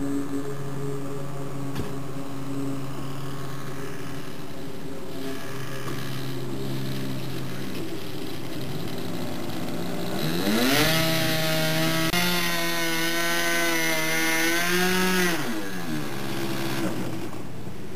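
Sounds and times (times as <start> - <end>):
model airplane engine revving: 0.0 - 17.6.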